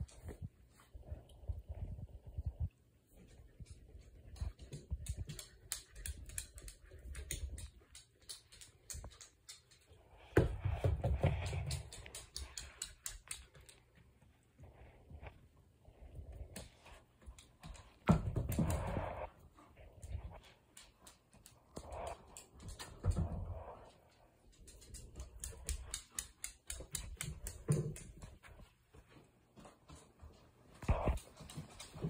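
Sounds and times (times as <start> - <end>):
dog claws clicking on wood floor: 3.5 - 14.1, 24.1 - 28.7.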